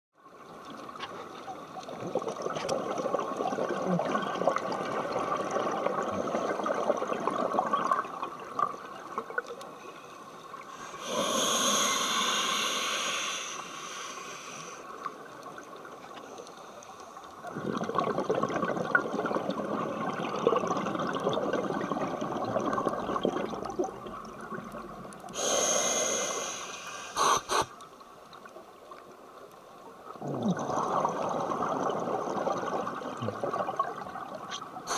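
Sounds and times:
gurgling exhaled bubbles: 1.9s - 9.5s, 17.4s - 25.1s, 30.1s - 34.9s
hissing regulator inhales: 10.7s - 14.9s, 25.3s - 27.7s.

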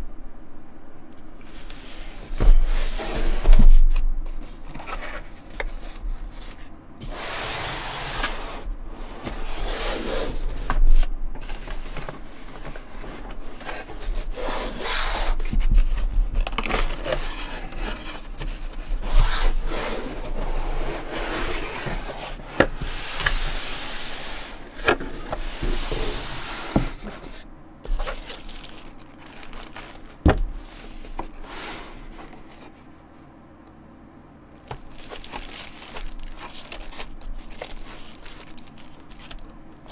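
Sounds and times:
cardboard box scraping: 7.0s - 10.8s, 16.8s - 28.8s.

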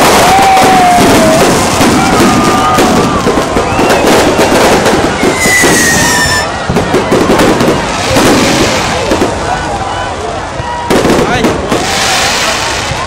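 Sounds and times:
whistling firework descending: 0.0s - 9.3s
fireworks crackling and popping: 0.0s - 13.0s.

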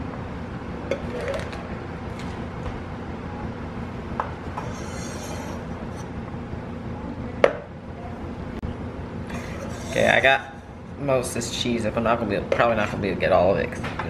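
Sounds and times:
knife scraping on cutting board: 4.6s - 6.1s, 9.3s - 10.6s.

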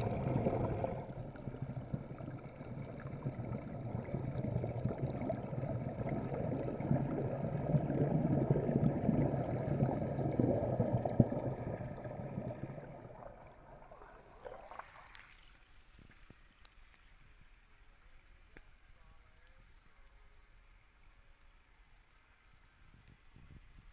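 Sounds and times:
churning water and bubbles underwater: 0.0s - 16.6s
faint ticks: 15.1s - 23.9s.

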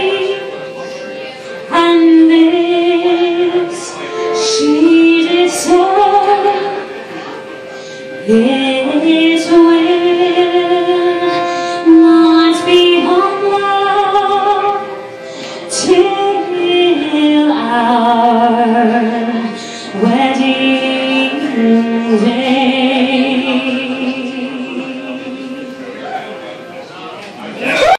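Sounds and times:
woman singing a slow ballad: 1.7s - 6.8s, 8.2s - 14.9s, 15.6s - 25.5s.

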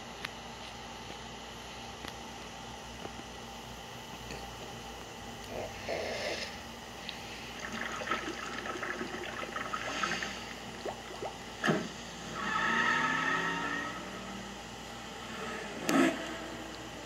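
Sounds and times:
cartoon liquid sloshing and gurgling: 7.5s - 11.9s.

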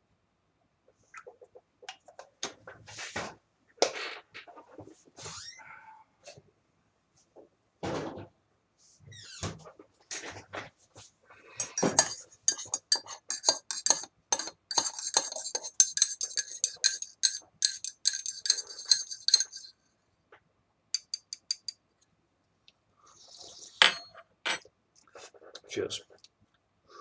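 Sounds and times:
spoon taps: 11.6s - 19.7s, 21.0s - 21.8s
teaspoon clinking in ceramic mug: 11.6s - 19.7s, 21.0s - 21.8s.

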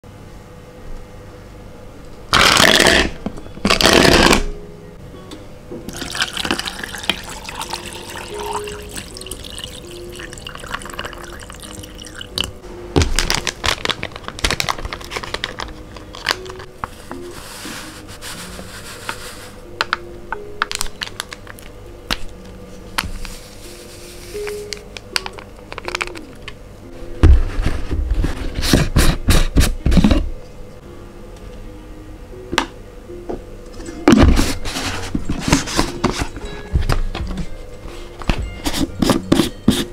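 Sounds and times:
soft background music: 0.1s - 39.9s
water poured into plastic cup: 5.9s - 12.5s
packaging rustling: 13.0s - 16.7s.

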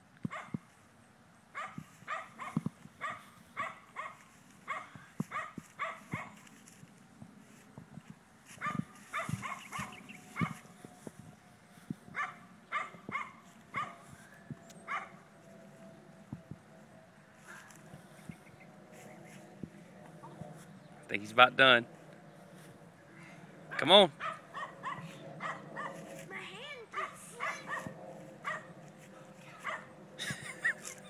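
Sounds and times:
dog barking: 1.6s - 6.4s, 8.6s - 10.6s, 12.2s - 14.0s, 14.9s - 15.1s, 24.2s - 26.0s, 26.9s - 28.7s, 29.6s - 29.9s.

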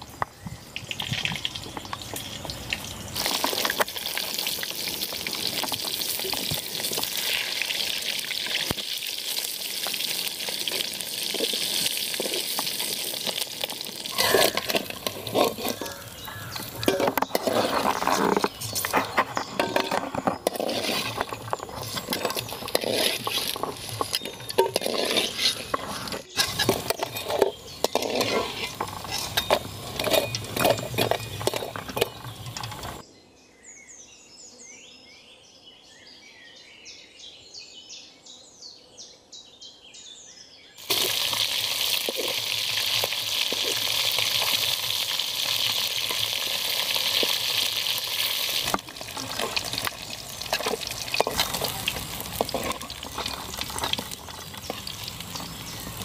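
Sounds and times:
fish frying in hot oil: 0.0s - 25.7s, 26.4s - 33.0s, 40.8s - 56.0s
metal spatula scraping pan: 14.0s - 33.0s, 43.5s - 56.0s.

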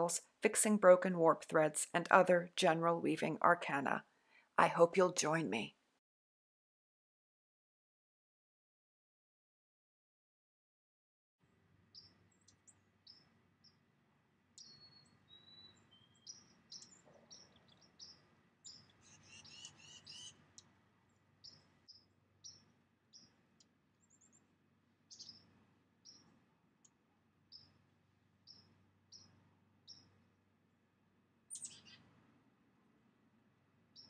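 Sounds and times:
birds chirping: 14.6s - 20.6s, 31.5s - 32.0s.

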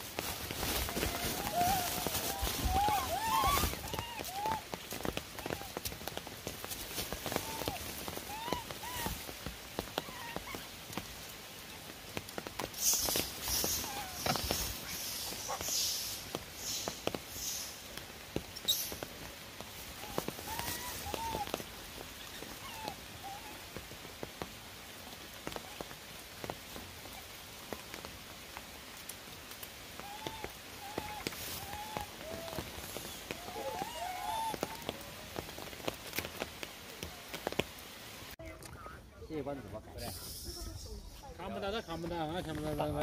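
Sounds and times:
rain pattering on stone: 0.0s - 39.9s, 40.5s - 43.0s
high squeaky calls: 1.3s - 4.6s, 40.0s - 42.3s.

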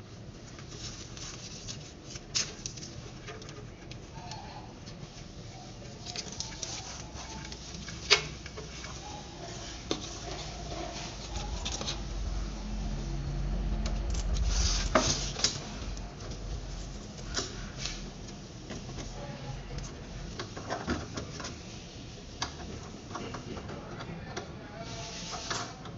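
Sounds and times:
hands handling cables: 5.8s - 12.1s
low rumble: 10.5s - 19.0s.

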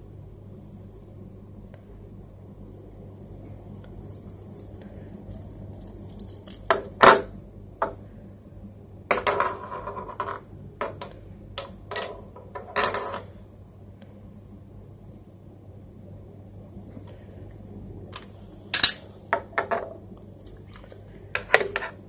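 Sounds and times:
low steady hum: 0.0s - 22.0s
plastic toy pieces clacking: 18.2s - 19.0s.

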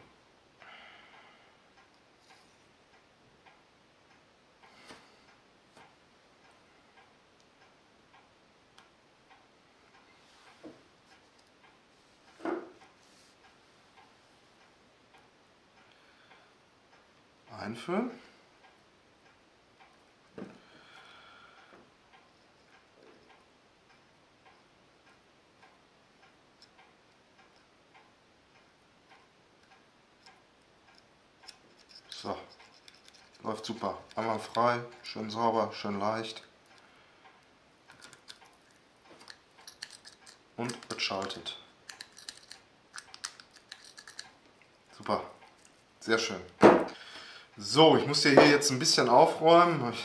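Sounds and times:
small metal parts clicking: 30.9s - 34.7s, 37.9s - 44.4s.

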